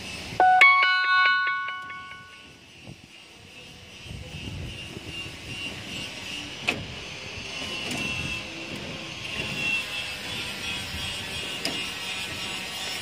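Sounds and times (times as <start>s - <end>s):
high wavering tone: 0.4s - 2.5s.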